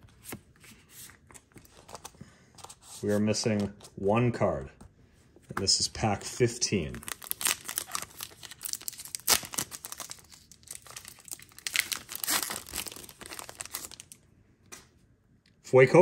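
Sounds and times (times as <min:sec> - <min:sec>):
foil wrapper crinkling and tearing: 0:07.0 - 0:14.2.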